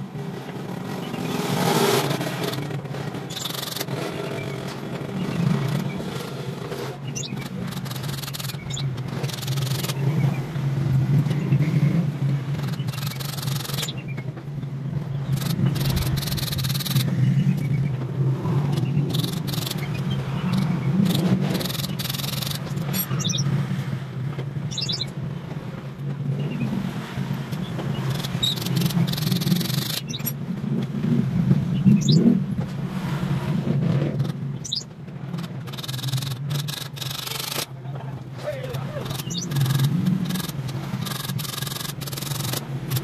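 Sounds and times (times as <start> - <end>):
metal wire scraping and clicking: 7.1 - 10.0, 15.2 - 17.1, 18.7 - 23.4, 34.2 - 37.8, 38.7 - 43.0.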